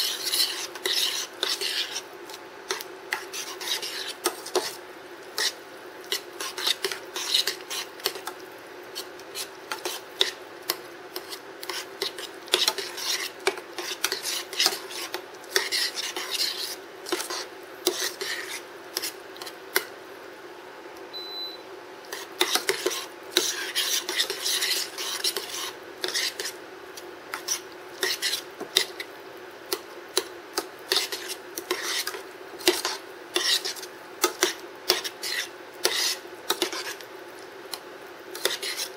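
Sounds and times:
metal spoon scraping saucepan: 0.0s - 2.0s, 2.7s - 4.8s, 5.4s - 8.2s, 11.2s - 19.1s, 22.1s - 26.5s, 30.9s - 36.9s, 38.4s - 38.9s.

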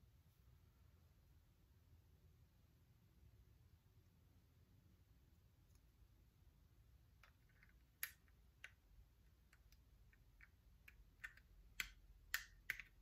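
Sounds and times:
plastic building pieces clicking: 7.2s - 13.0s.

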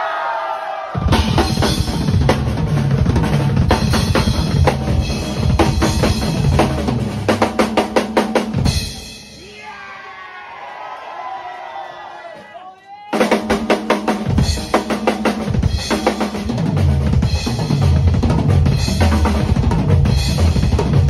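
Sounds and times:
drum kit solo: 1.0s - 9.4s, 13.1s - 21.0s
voices shouting: 9.3s - 13.2s.

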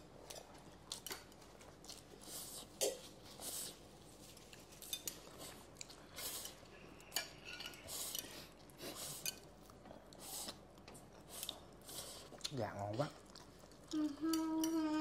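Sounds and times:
utensils clinking against dishes: 6.3s - 8.3s.

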